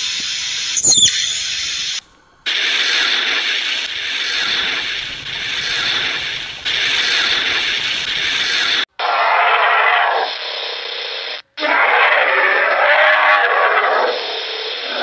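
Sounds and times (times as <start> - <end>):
squirrel chirp: 0.8 - 1.8.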